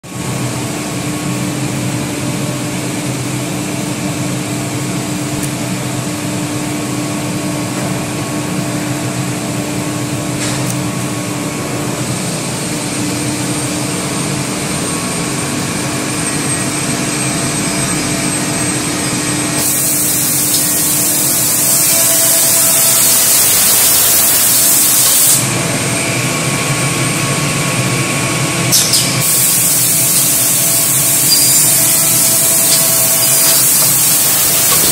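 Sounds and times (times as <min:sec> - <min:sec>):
machine mechanical hum: 0:00.1 - 0:34.9
loud hiss: 0:19.6 - 0:25.5, 0:29.2 - 0:34.9.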